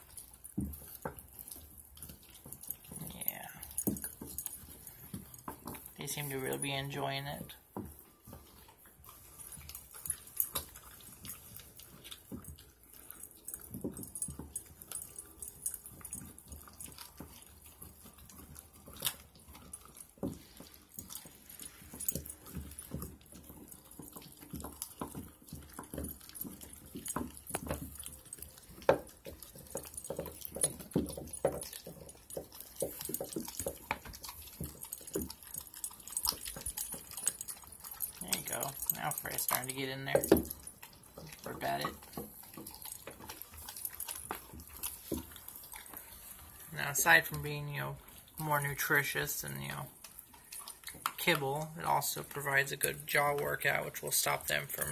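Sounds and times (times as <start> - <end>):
puppy chewing bone: 0.0 - 54.9.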